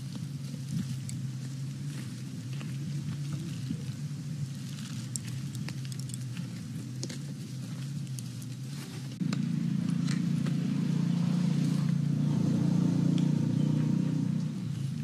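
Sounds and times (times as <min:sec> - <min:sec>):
wood fire crackling: 0:00.0 - 0:09.4
low engine-like hum: 0:00.0 - 0:15.0.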